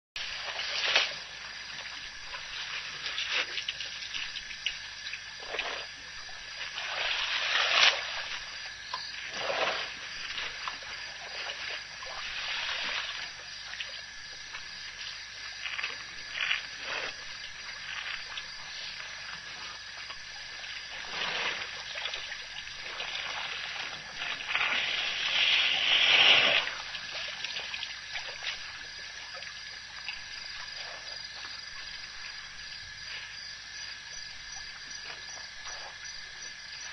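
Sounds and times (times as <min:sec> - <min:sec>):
water splashing and sloshing: 0:00.2 - 0:36.9.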